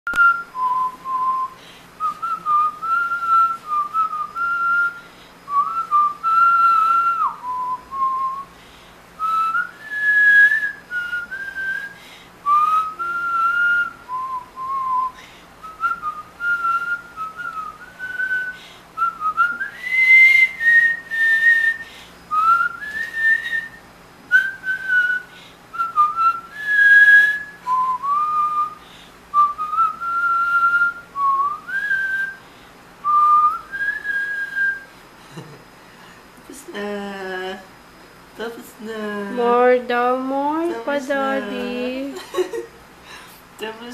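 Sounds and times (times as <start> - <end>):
man whistling a melody: 0.1 - 8.5, 9.2 - 32.4, 33.0 - 34.9.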